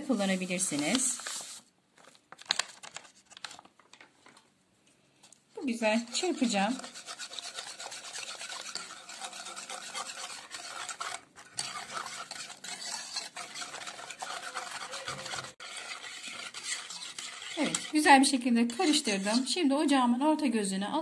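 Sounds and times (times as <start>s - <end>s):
wire whisk scraping a pot: 5.7s - 19.6s.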